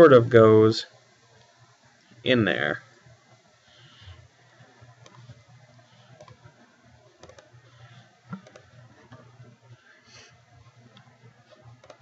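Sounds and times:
low steady hum: 0.0s - 12.0s
computer mouse clicking: 5.0s - 5.4s, 6.0s - 6.5s, 7.2s - 9.2s, 11.7s - 12.0s.

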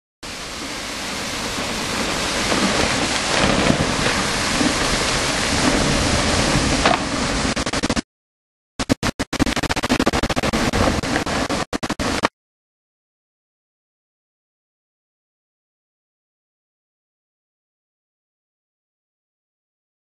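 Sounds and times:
avalanche rushing rumble: 0.3s - 8.0s, 10.2s - 12.2s.

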